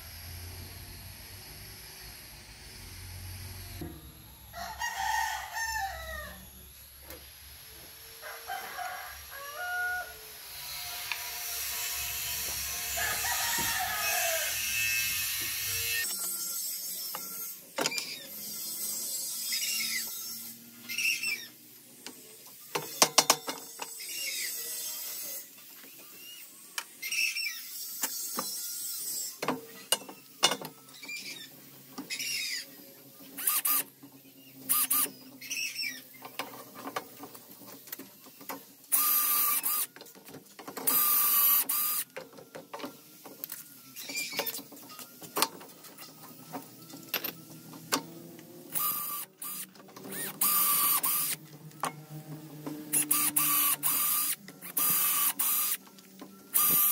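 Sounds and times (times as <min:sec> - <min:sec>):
power drill boring into wood: 0:10.5 - 0:16.5, 0:33.3 - 0:33.9, 0:34.7 - 0:36.1, 0:38.9 - 0:39.9, 0:40.9 - 0:42.1, 0:48.7 - 0:51.4, 0:52.9 - 0:55.8, 0:56.5 - 0:56.9.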